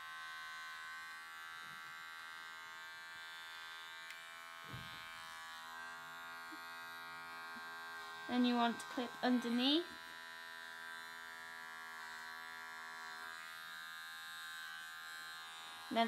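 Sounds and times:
electric clippers buzzing: 0.0 - 16.0.

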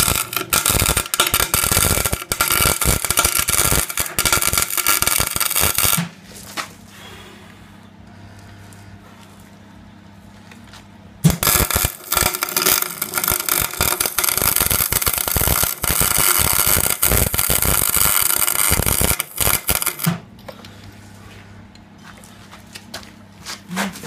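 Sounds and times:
welder arc crackling: 0.0 - 6.1, 11.2 - 20.2
low steady hum: 0.0 - 24.0.

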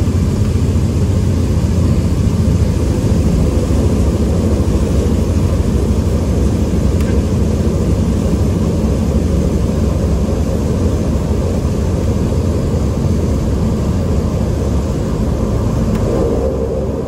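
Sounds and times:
turboprop cabin drone: 0.0 - 17.0.

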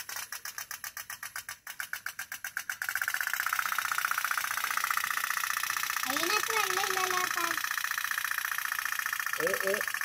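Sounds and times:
toy steam boat putt-putting: 0.0 - 10.0.

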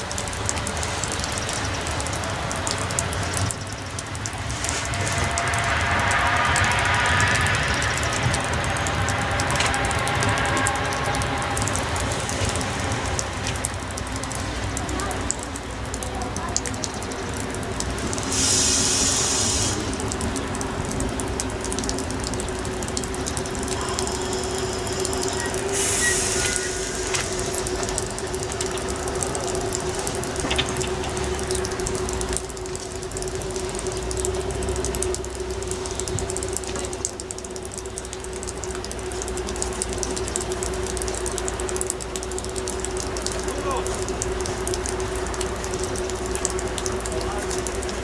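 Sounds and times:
diesel railcar engine humming: 0.0 - 48.0
short air hisses: 18.3 - 19.9, 25.8 - 27.1.

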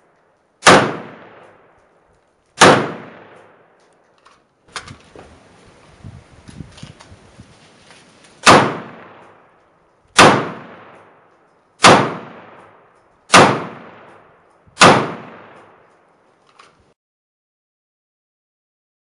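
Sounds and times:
rifle gunshots echoing: 0.0 - 1.8, 2.6 - 3.8, 8.4 - 9.6, 10.2 - 16.0.

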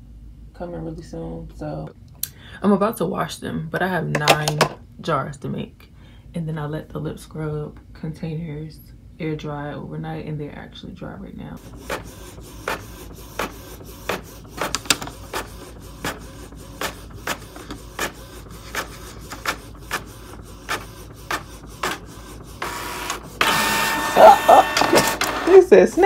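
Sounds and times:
inkjet printer clicking: 11.6 - 26.0
printer whirring: 11.6 - 26.0.

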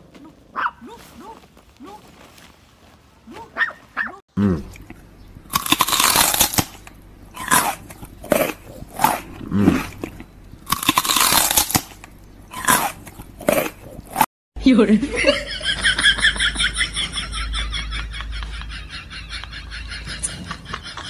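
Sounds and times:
dog crunching an apple: 4.7 - 14.3.

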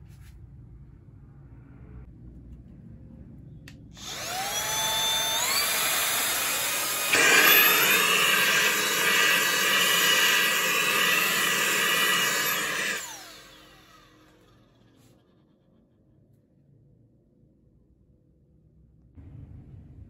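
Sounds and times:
handheld vacuum cleaner whining: 4.0 - 14.8.

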